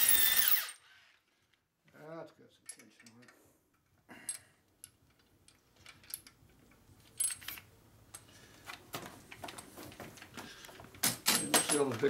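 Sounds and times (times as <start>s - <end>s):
light metallic clicks and clinks: 2.6s - 3.4s, 11.2s - 12.0s.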